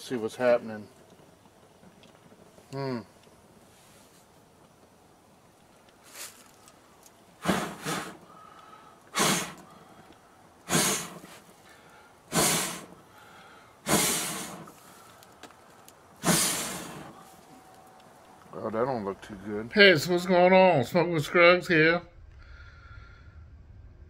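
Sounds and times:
man blowing puffs of breath: 7.4 - 15.3, 16.2 - 17.4, 22.4 - 23.6.

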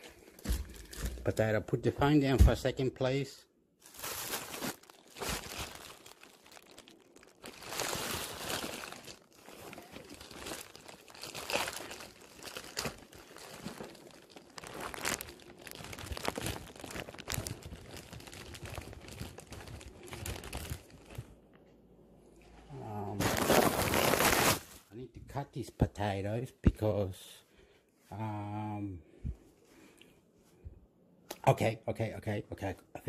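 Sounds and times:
crinkling and rustling: 0.0 - 1.6, 3.8 - 25.0.

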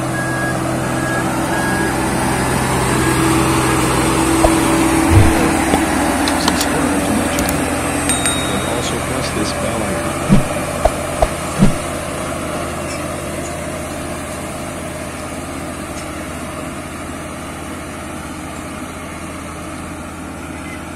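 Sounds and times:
roller diesel engine running: 0.0 - 20.9
short knocks: 4.4 - 6.0, 10.3 - 12.1.

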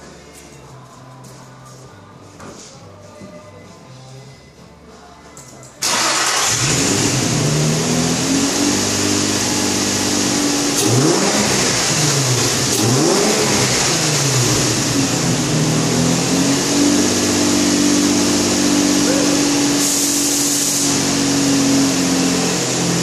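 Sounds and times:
car engine starting and running: 5.8 - 23.0.

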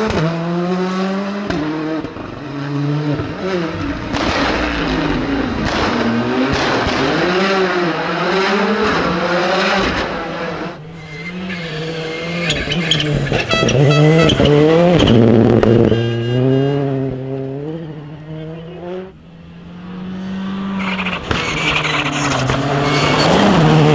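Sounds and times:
rally car engines revving: 0.0 - 23.9
engine crackles: 3.2 - 7.8.

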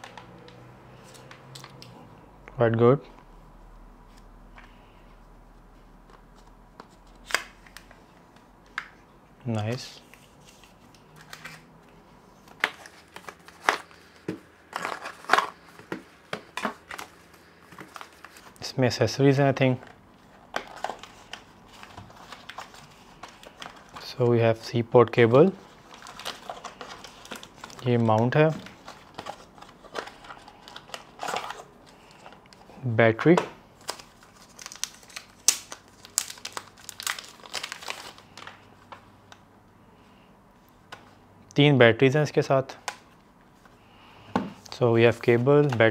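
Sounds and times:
packaging crinkling: 12.6 - 18.6, 25.6 - 32.6, 33.8 - 39.0.

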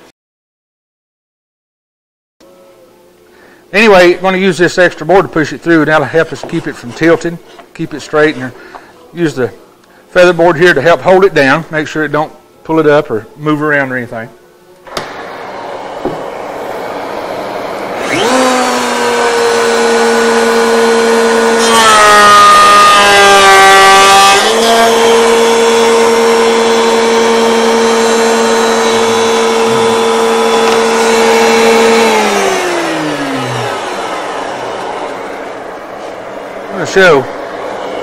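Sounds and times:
router motor whining: 14.8 - 38.0
router bit cutting wood: 14.9 - 38.0.

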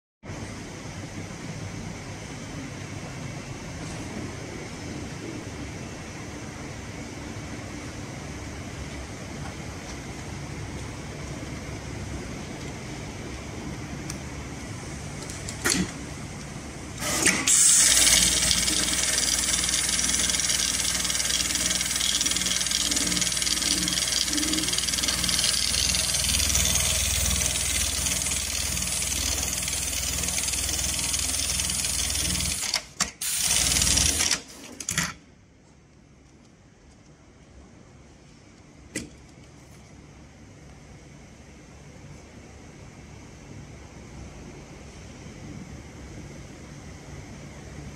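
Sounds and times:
sewing machine stitching: 17.0 - 35.1.

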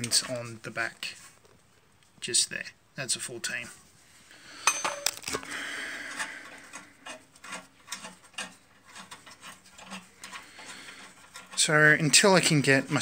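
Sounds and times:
hands handling car brake parts: 4.6 - 5.5.

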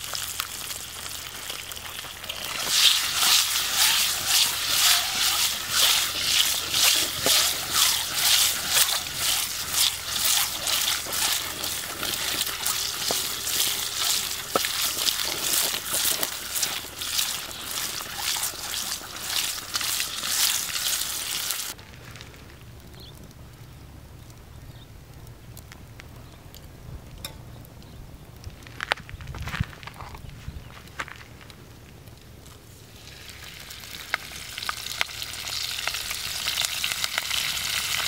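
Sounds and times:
eggs sizzling in hot oil: 0.0 - 21.8, 32.8 - 38.0.

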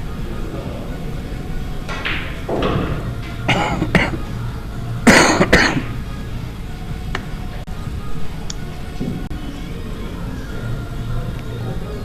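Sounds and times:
background music: 0.0 - 12.0
person coughing: 3.5 - 4.2, 5.1 - 5.9.

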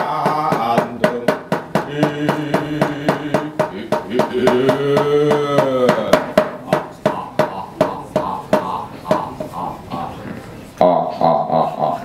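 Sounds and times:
wooden mallet knocking on chest: 0.0 - 9.3
man chanting: 0.0 - 12.0.

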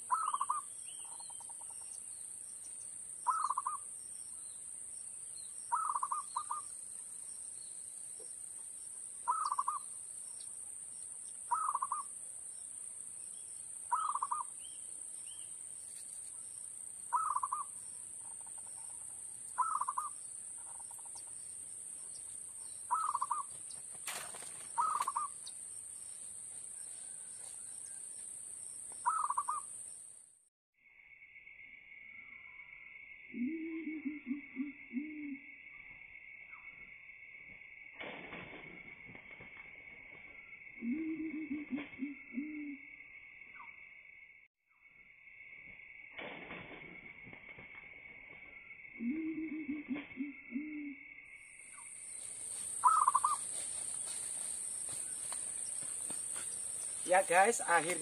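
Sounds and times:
small birds chirping: 0.0 - 30.2, 51.6 - 58.0
dove cooing: 0.1 - 0.6, 11.5 - 12.0, 19.6 - 20.1, 22.9 - 23.5, 24.1 - 25.4, 33.4 - 35.4, 40.8 - 42.8, 49.0 - 51.0, 52.8 - 53.4.

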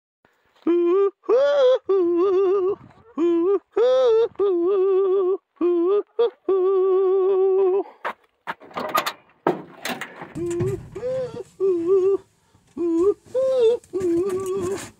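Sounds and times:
person singing wordless tune: 0.6 - 8.0, 10.4 - 14.9
knocks clicks and rustling: 8.5 - 11.2.

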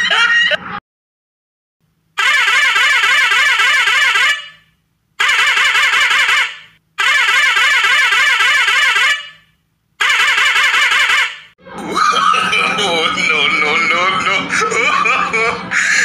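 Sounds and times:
truck musical horn warbling: 2.2 - 11.5.

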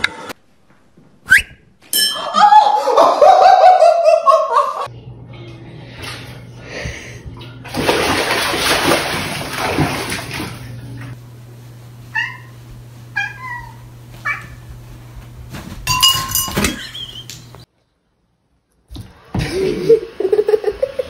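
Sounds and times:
water splashing in bathtub: 7.7 - 11.2.

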